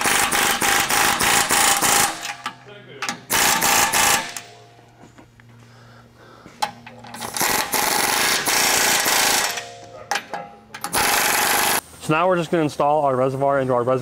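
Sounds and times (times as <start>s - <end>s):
pneumatic air ratchet running: 0.0s - 2.5s, 3.1s - 4.6s, 6.6s - 9.8s, 10.8s - 11.9s.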